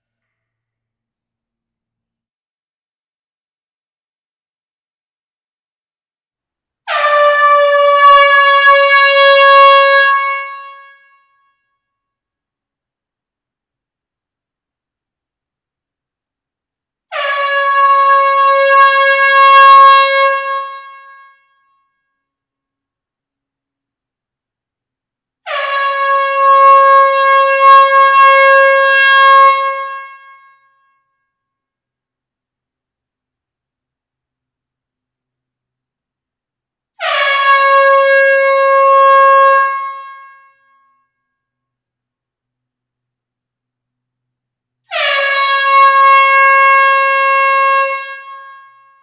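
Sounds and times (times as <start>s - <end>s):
air horn long blast: 6.9s - 11.5s, 17.1s - 21.6s, 25.4s - 30.8s, 37.0s - 40.8s, 44.9s - 49.0s.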